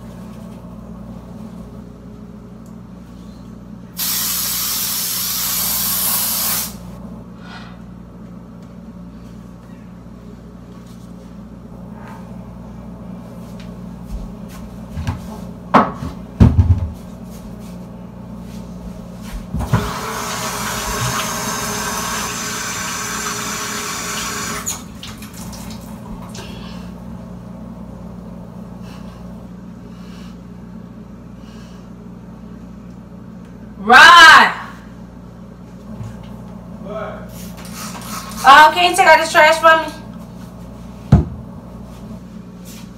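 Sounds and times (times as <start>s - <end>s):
kitchen tap running: 19.8s - 26.5s.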